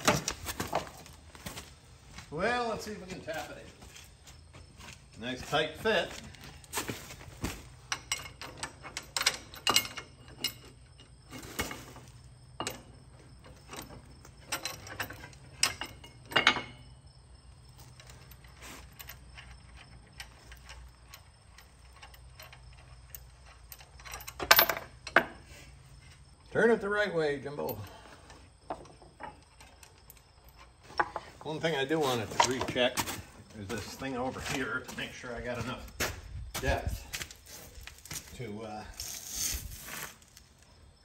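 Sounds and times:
steel parts clinking: 7.8s - 16.9s.

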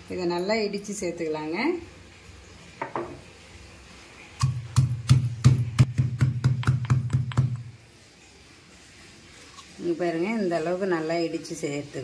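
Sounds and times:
stone pestle pounding in mortar: 4.4s - 7.6s.

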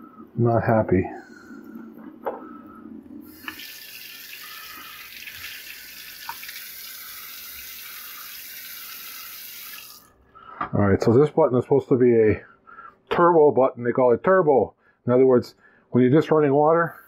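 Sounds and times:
faucet water running into sink: 3.3s - 10.1s.

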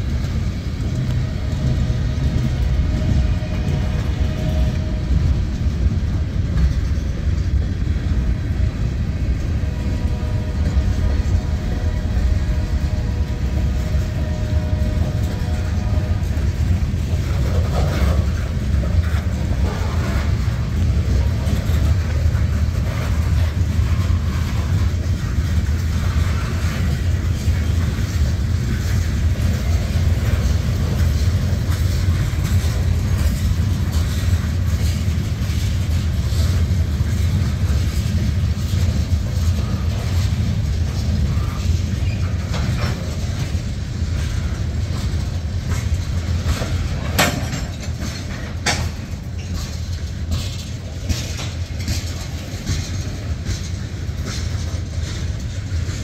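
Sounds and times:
train wheels rumbling on rail: 0.0s - 56.0s
clicks and clanks: 25.4s - 43.6s, 44.2s - 56.0s.

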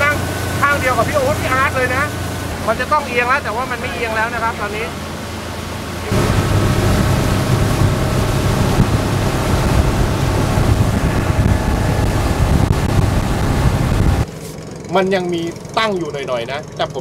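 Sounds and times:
water rushing past hull: 0.0s - 14.3s
speedboat engine drone: 0.0s - 17.0s
wind buffeting microphone: 6.0s - 14.3s.

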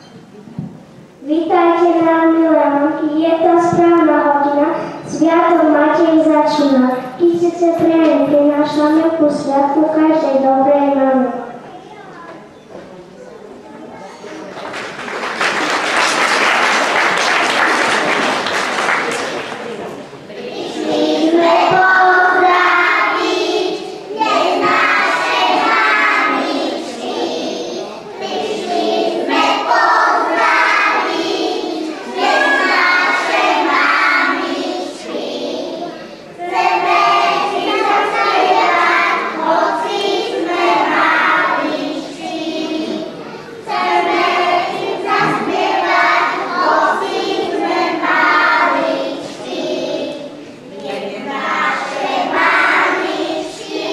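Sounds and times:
children singing together: 20.3s - 53.9s.

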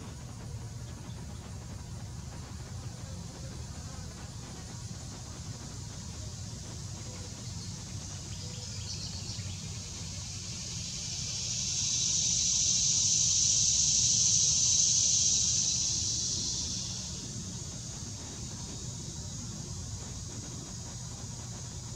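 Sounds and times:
steady low rumble: 0.0s - 21.9s
insect buzzing call: 6.2s - 21.1s.

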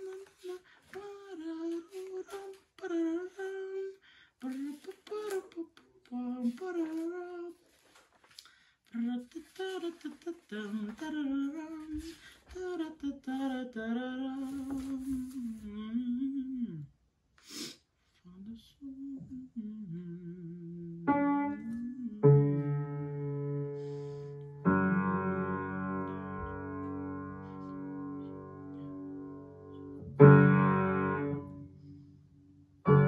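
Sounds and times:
person humming a tune: 0.0s - 7.6s, 9.0s - 16.9s, 18.3s - 23.7s
piano chords ringing: 21.1s - 33.0s.

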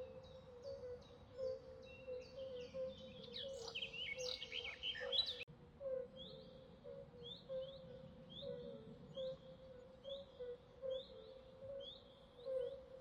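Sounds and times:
birds chirping: 3.2s - 5.5s.

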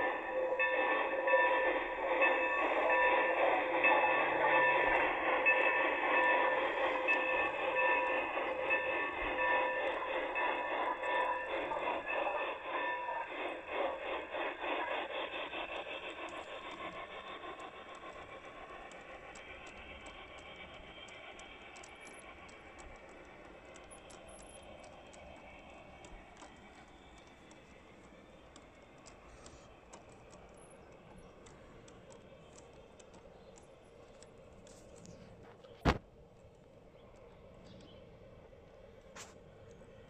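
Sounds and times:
model train wheels clicking on rails: 0.0s - 40.0s.

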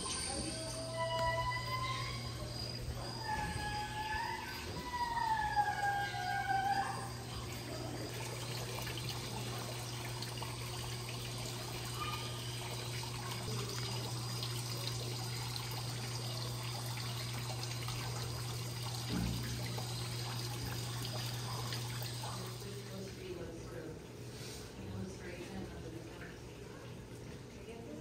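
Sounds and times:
water trickling: 0.0s - 24.3s
whistling call: 0.1s - 7.1s.

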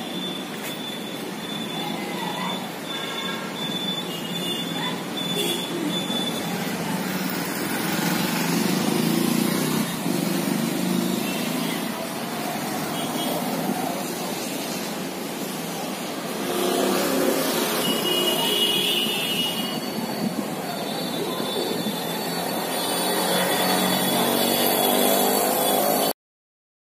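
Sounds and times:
vehicles passing: 0.0s - 26.1s
high squealing tone: 19.5s - 26.1s.

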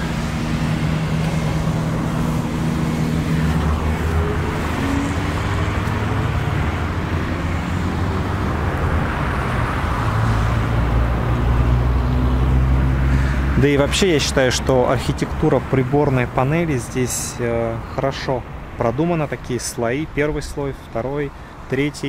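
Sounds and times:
traffic rumble: 0.0s - 22.0s.

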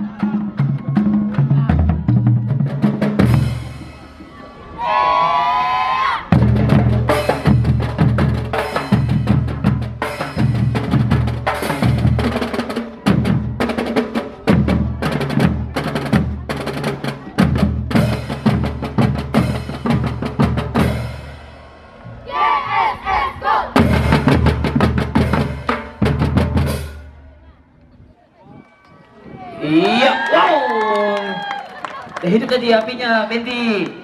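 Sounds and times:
bass drums: 0.0s - 4.3s, 6.3s - 21.6s, 23.7s - 27.2s
snare drums: 6.3s - 21.3s, 23.8s - 27.1s.

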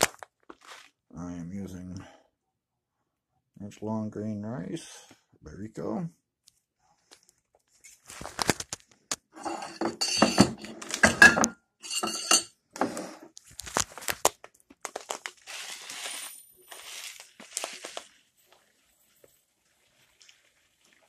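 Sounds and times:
dishes and glass clinking: 9.4s - 13.0s
plastic bag of rice rustling: 13.4s - 21.0s.

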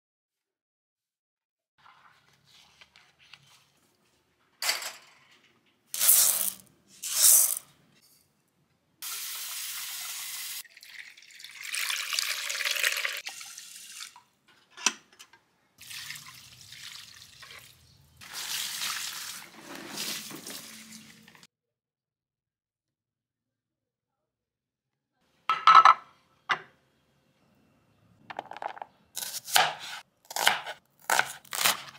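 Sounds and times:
tap water running into a metal pot: 10.0s - 14.3s, 15.8s - 19.4s
water splashing onto plants: 18.2s - 21.3s.

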